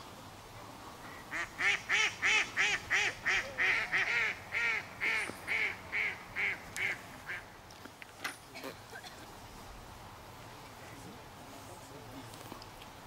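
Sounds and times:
duck quacking: 0:01.3 - 0:07.4.

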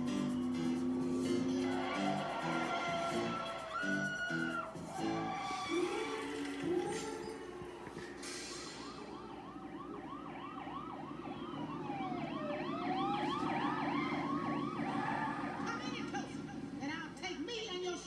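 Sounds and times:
engine drone: 0:00.0 - 0:03.8, 0:07.7 - 0:18.0
cartoon siren yelping: 0:00.9 - 0:06.2, 0:08.8 - 0:16.8
siren tone sweeping down and up: 0:08.0 - 0:16.8.

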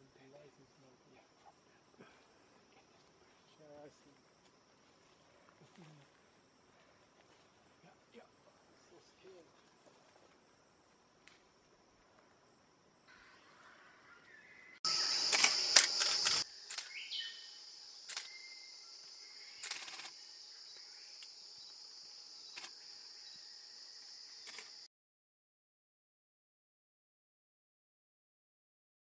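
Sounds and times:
high-pitched insect drone: 0:13.0 - 0:24.9.

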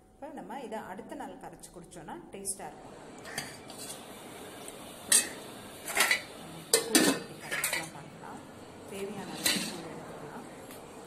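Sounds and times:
spoon clinking against metal pots: 0:05.1 - 0:07.9, 0:09.3 - 0:09.9.

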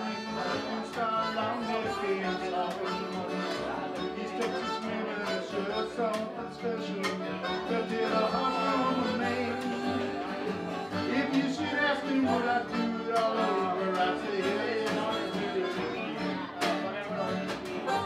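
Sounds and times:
harmonica lead: 0:00.0 - 0:18.0
strummed acoustic guitars: 0:00.0 - 0:18.0.

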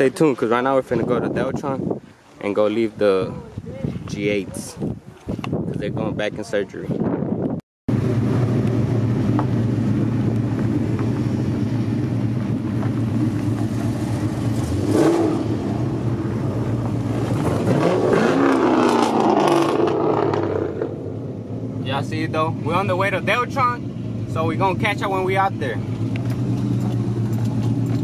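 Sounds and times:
car engine revving: 0:07.9 - 0:28.0.

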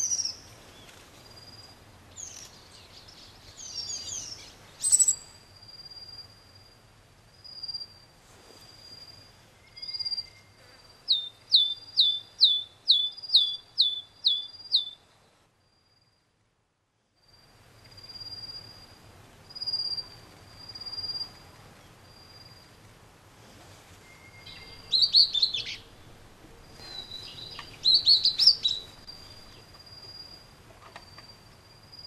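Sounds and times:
small songbirds calling: 0:00.0 - 0:06.3, 0:09.0 - 0:15.0, 0:19.5 - 0:22.7, 0:24.1 - 0:32.0.

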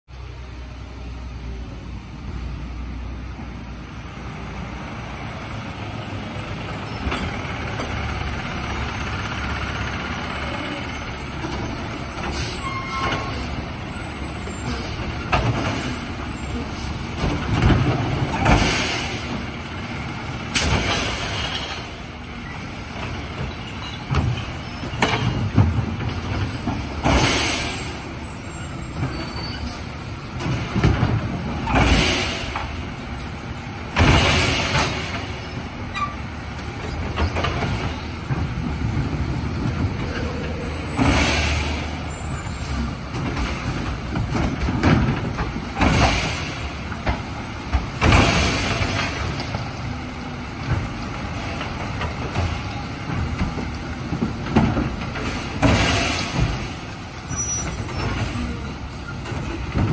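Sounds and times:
air brakes hissing: 0:10.7 - 0:15.0, 0:26.8 - 0:29.9.

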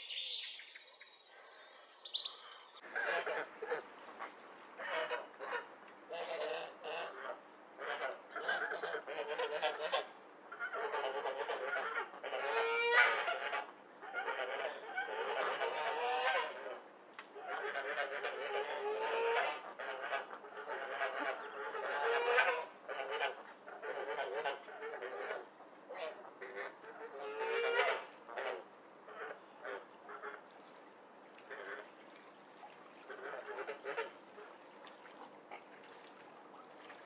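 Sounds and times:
ducks quacking: 0:17.4 - 0:30.4, 0:32.9 - 0:34.6.

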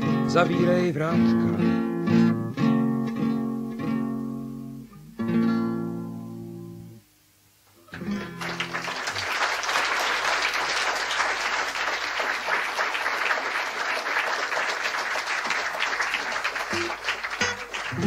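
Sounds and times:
acoustic guitar chord ringing: 0:00.0 - 0:07.1, 0:07.8 - 0:08.8, 0:16.7 - 0:18.0
audience applause: 0:08.0 - 0:18.0.

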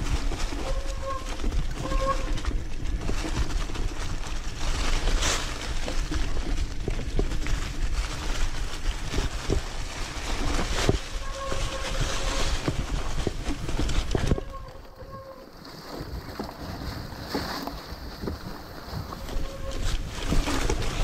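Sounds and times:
wind noise on microphone: 0:00.0 - 0:21.0.

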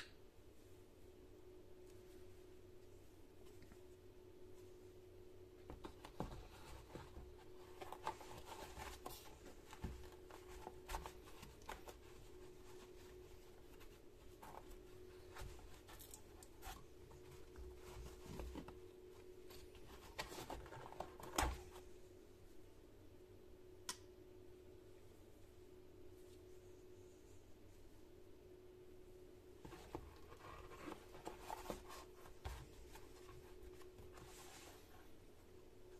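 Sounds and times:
faint steady hum: 0:00.0 - 0:35.9.

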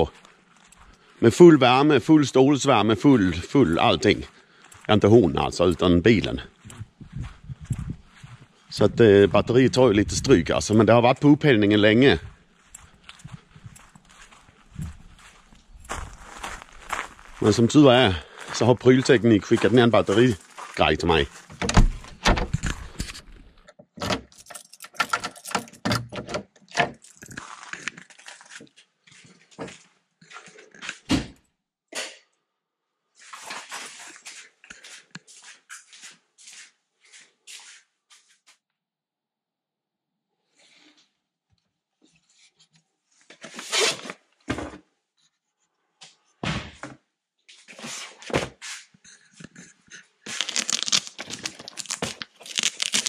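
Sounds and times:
door being pulled open: 0:21.5 - 0:22.6
key clicking in door lock: 0:24.0 - 0:26.4
keys jangling: 0:24.2 - 0:26.1.

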